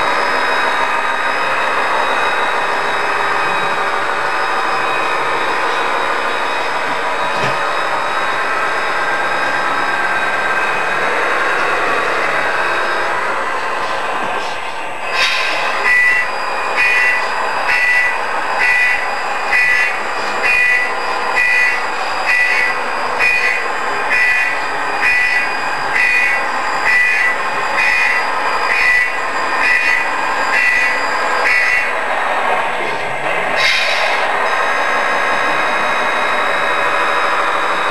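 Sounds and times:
engine-like noise: 0:00.0 - 0:37.9
high reversing beeps: 0:15.5 - 0:31.9.

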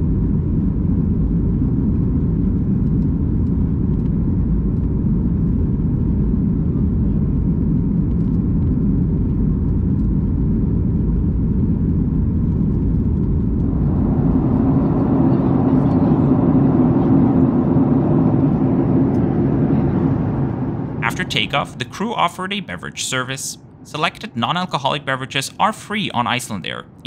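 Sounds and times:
jet engine drone: 0:00.0 - 0:27.0
steady hum: 0:00.0 - 0:27.0
airflow past fuselage: 0:11.9 - 0:22.8.

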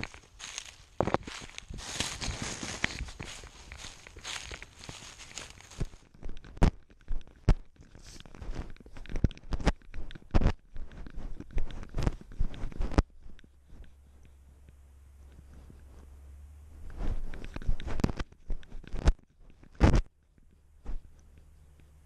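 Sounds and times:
steps through dry grass: 0:00.0 - 0:06.5.

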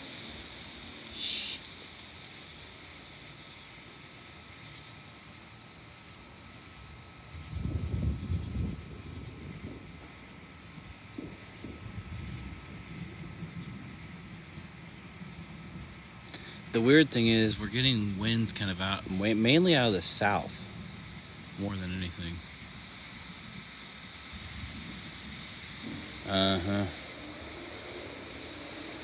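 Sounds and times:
night insects chorus: 0:00.0 - 0:29.0
distant thunder rumbling: 0:07.3 - 0:29.0.

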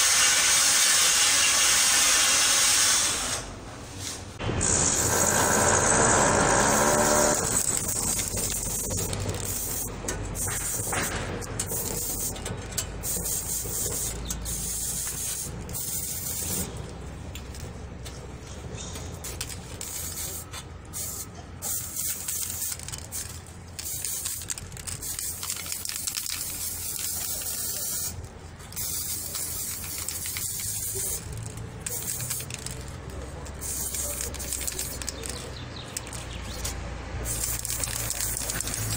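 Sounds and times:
compressed air hissing from spray gun: 0:06.8 - 0:11.1, 0:11.7 - 0:12.4, 0:13.0 - 0:16.7, 0:19.2 - 0:32.8, 0:33.6 - 0:35.4, 0:37.2 - 0:38.9.

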